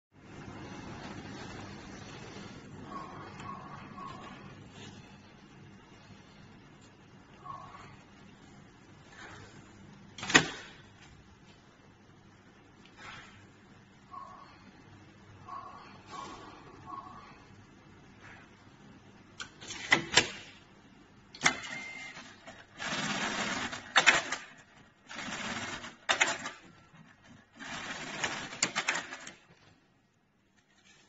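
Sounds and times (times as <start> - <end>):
sewing machine stitching: 27.3 - 29.4.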